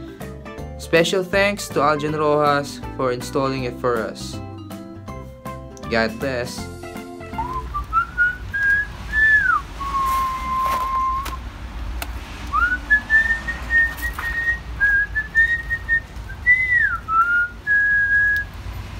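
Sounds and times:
person whistling a tune: 0:07.0 - 0:11.4, 0:12.5 - 0:18.5.

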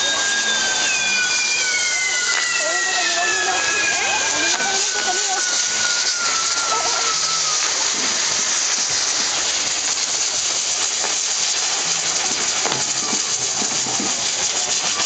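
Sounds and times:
whistle falling in pitch: 0:00.0 - 0:07.8
fireworks fountains hissing: 0:00.0 - 0:15.0.

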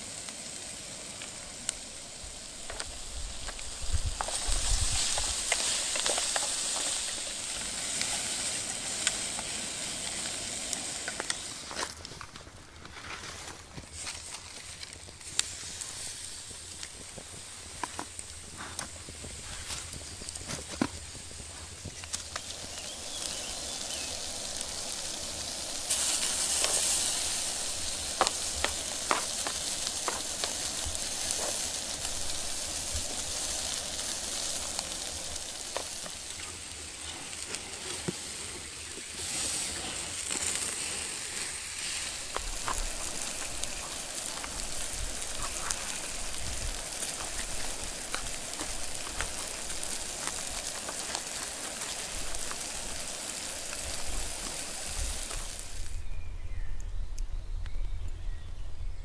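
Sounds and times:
food sizzling in a frying pan: 0:00.0 - 0:11.9, 0:13.8 - 0:56.0
pops and crackles: 0:00.1 - 0:56.0.

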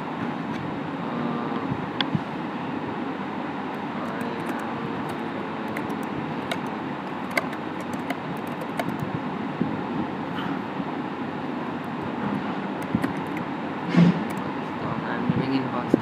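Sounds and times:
background hiss and rumble: 0:00.0 - 0:16.0
keyboard keys clicking: 0:04.0 - 0:09.1, 0:12.8 - 0:13.5.

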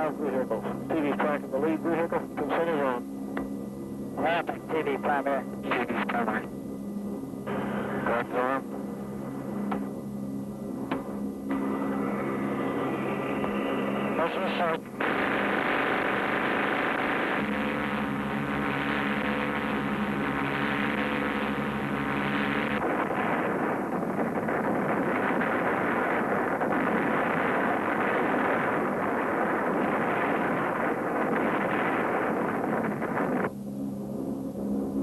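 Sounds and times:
turboprop engines droning inside aircraft: 0:00.0 - 0:35.0.

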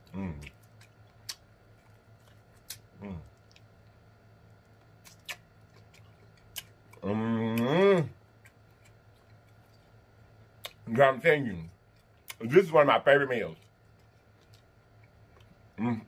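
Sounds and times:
wet mouth clicks while chewing: 0:00.4 - 0:03.7, 0:05.0 - 0:07.7.

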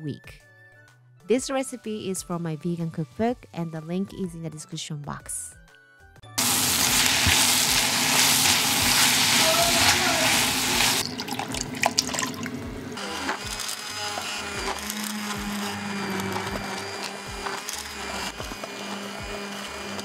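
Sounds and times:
milk pouring: 0:06.4 - 0:12.7
vegetables sizzling in a pot: 0:06.4 - 0:13.0.

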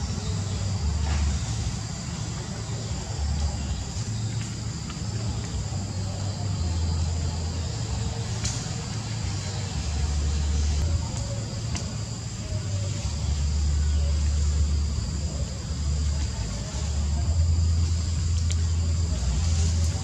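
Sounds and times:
faint clicks: 0:11.1 - 0:12.0.

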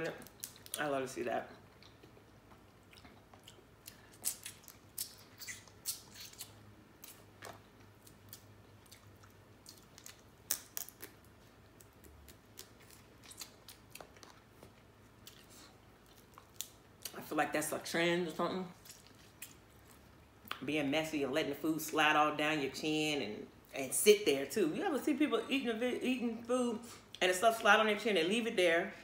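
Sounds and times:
chewing: 0:01.6 - 0:17.1, 0:18.8 - 0:20.6
crab shells cracking: 0:09.7 - 0:13.9.

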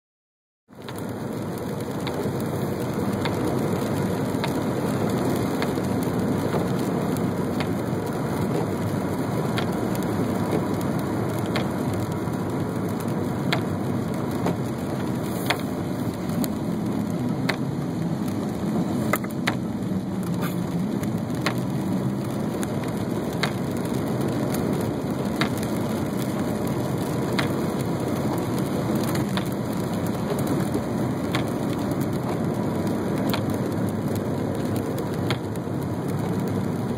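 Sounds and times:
tyre and rain noise: 0:00.7 - 0:36.9.

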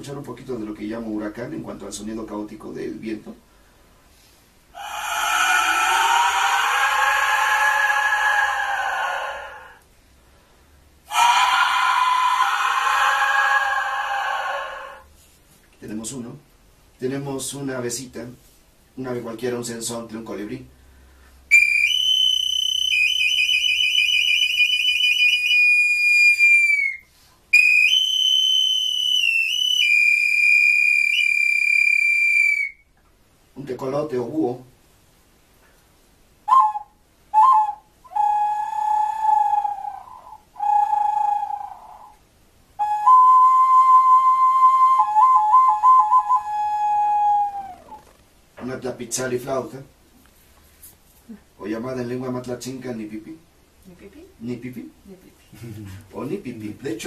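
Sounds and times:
high trilling bird whistle: 0:04.8 - 0:09.7, 0:21.5 - 0:32.9, 0:36.5 - 0:42.2, 0:42.8 - 0:48.2.

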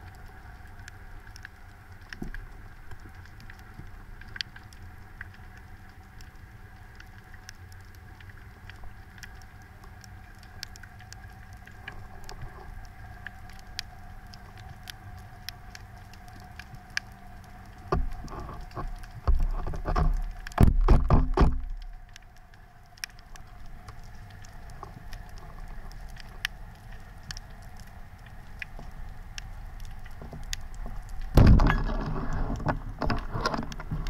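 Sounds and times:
crackle of reef clicks: 0:00.0 - 0:34.0
faint steady hum: 0:00.0 - 0:34.0
low knocks and rumbling: 0:19.2 - 0:21.8, 0:30.2 - 0:34.0.

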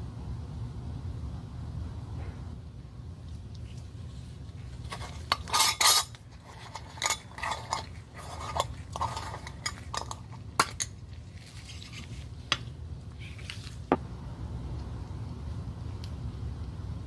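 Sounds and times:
metal lid scraping glass jar: 0:04.8 - 0:11.0.

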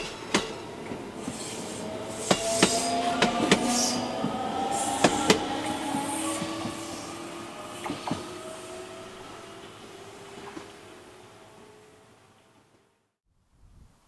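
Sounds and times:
wheels clacking over rail joints: 0:00.0 - 0:11.0
faint rising motor whine: 0:01.8 - 0:12.6.

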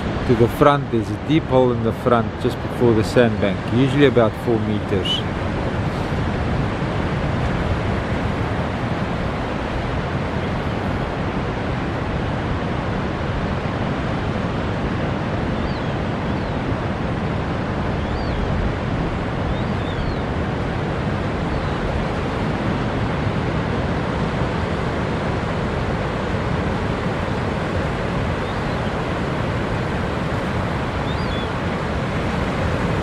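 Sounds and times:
surf: 0:00.0 - 0:33.0
wind: 0:00.0 - 0:33.0
faint high bird chirps: 0:15.6 - 0:16.6, 0:18.0 - 0:18.4, 0:19.5 - 0:20.2, 0:28.4 - 0:29.0, 0:31.0 - 0:31.6.

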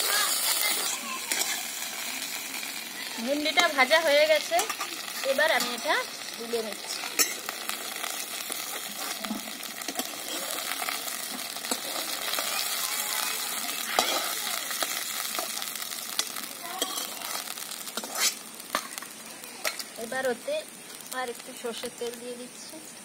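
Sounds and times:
oil sizzling in a pan: 0:00.0 - 0:23.0
metal spatula scraping a pan: 0:01.3 - 0:01.7, 0:06.8 - 0:07.5, 0:16.2 - 0:19.0.

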